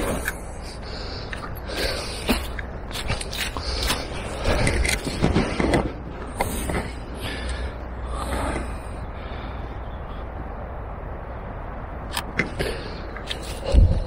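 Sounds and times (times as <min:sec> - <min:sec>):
camera handling clicks and rustling: 0:02.3 - 0:06.8.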